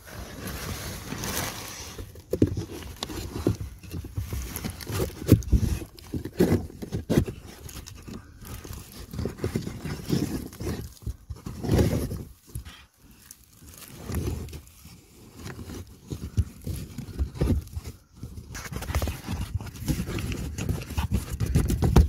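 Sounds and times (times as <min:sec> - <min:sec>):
filter scraping and rubbing: 0:13.7 - 0:22.0.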